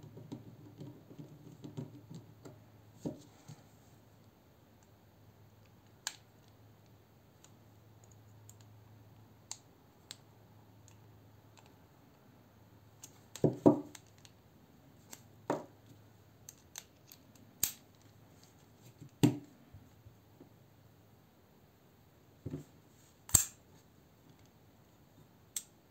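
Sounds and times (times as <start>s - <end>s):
tools clicking and knocking on table: 13.0s - 14.3s, 15.1s - 15.7s.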